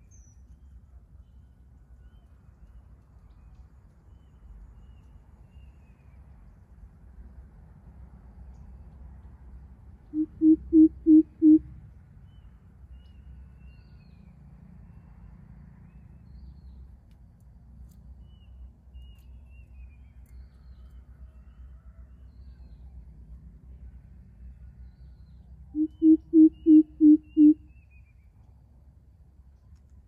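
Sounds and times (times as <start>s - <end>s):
deep hollow bird hoots: 10.1s - 11.6s, 25.7s - 27.6s.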